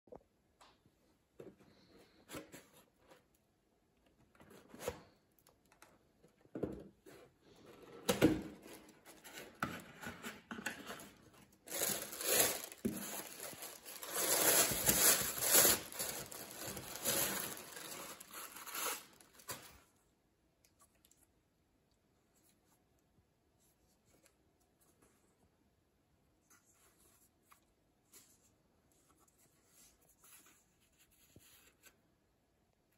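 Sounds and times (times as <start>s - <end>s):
tissue paper rustling: 11.6s - 19.8s.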